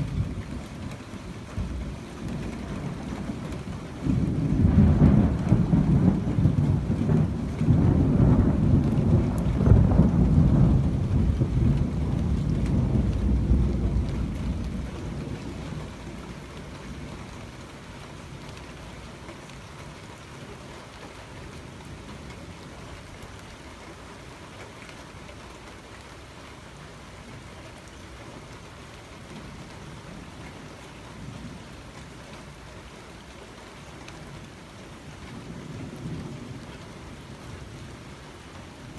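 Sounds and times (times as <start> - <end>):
thunder rumbling: 0.0 - 18.5
steady rain: 0.0 - 38.9.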